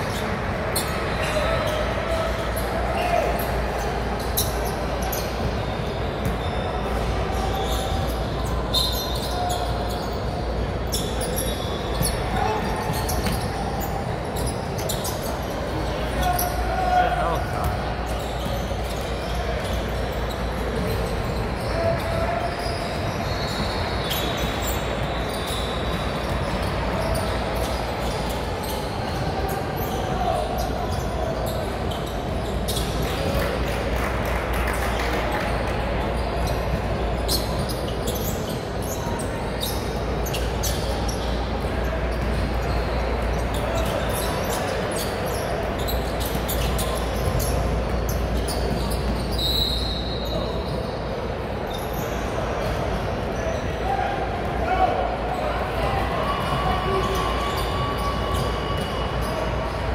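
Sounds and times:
echoing hubbub of voices: 0:00.0 - 0:59.9
ball bouncing on hardwood court: 0:12.9 - 0:13.5.

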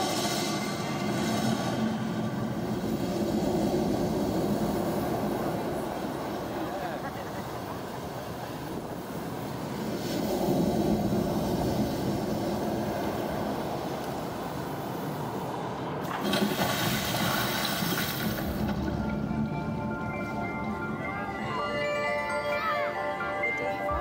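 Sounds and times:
rushing water and surf over loudspeakers: 0:00.0 - 0:24.0.

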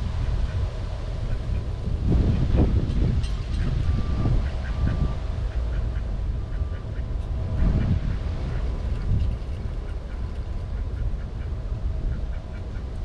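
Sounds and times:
wind rumble on microphone: 0:00.0 - 0:13.0
ducks quacking: 0:03.3 - 0:13.0.

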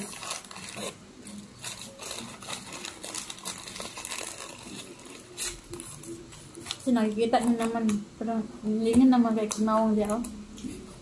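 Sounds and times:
paper wrapper crinkling: 0:00.0 - 0:08.0.

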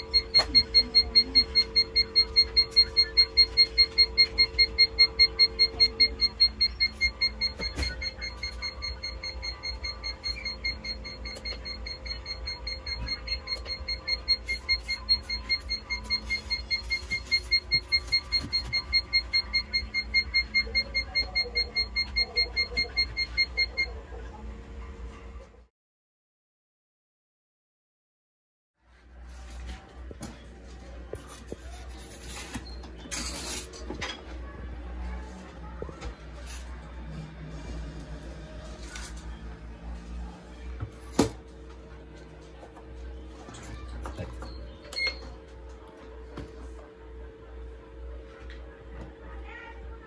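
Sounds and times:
rapid high beeps: 0:00.0 - 0:23.9.

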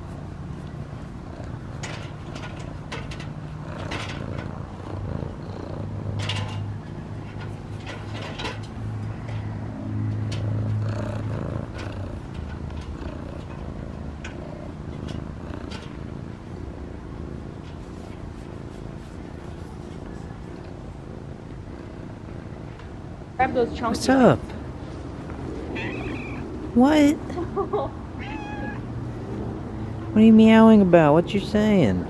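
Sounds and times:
cat purring: 0:00.6 - 0:08.5, 0:09.5 - 0:23.2.

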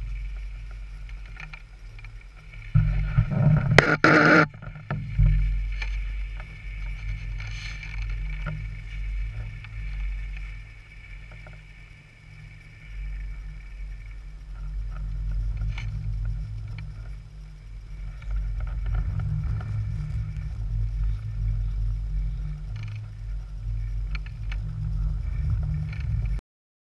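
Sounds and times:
wind buffeting microphone: 0:00.0 - 0:26.4.

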